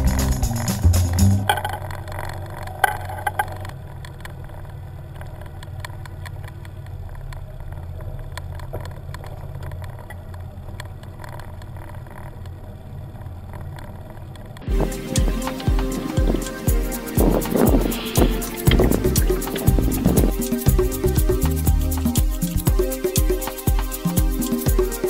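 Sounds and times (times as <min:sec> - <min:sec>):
boat motor humming: 0:00.0 - 0:03.9, 0:15.9 - 0:22.2.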